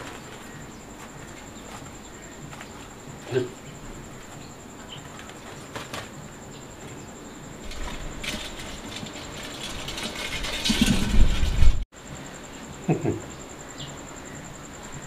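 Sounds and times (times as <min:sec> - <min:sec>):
crabs scrabbling in metal pot: 0:07.6 - 0:11.8.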